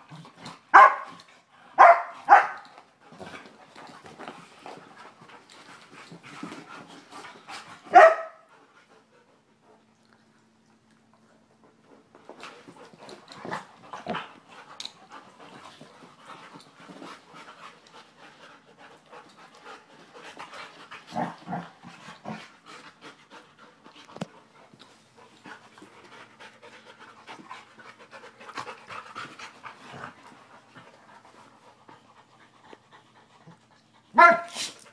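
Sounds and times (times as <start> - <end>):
dogs panting: 11.6 - 34.2.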